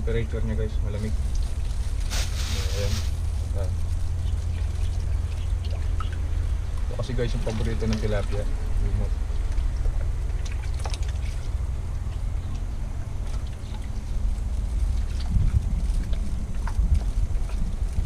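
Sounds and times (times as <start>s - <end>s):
wind buffeting microphone: 11.6s - 18.0s.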